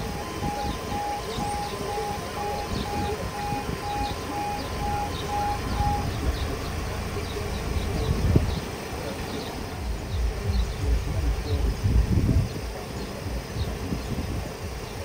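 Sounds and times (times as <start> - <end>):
level crossing alarm beeping: 0.0 - 8.7
low uneven rumble: 0.0 - 15.0
small birds chirping: 0.0 - 15.0.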